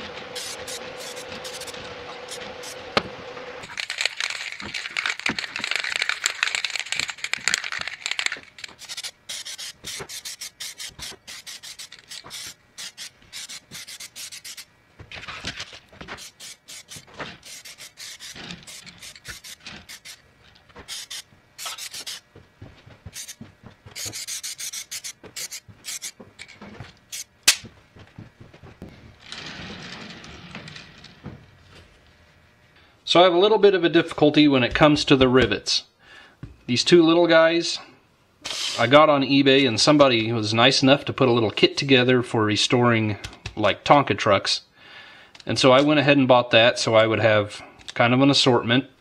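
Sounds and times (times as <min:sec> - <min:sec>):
aerosol spray can hissing: 0:00.4 - 0:02.8, 0:08.7 - 0:14.7, 0:16.2 - 0:20.2, 0:20.9 - 0:22.2, 0:23.1 - 0:23.4, 0:24.0 - 0:26.2
sharp clicks and knocks: 0:15.0 - 0:31.5.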